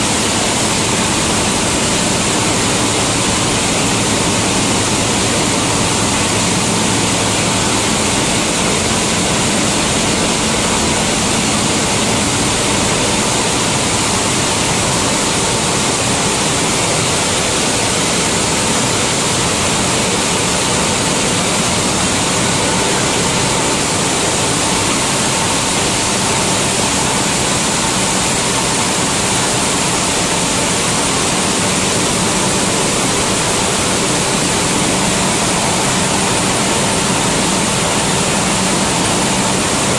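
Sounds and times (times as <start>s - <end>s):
milling machinery rush and hum: 0.0s - 39.9s.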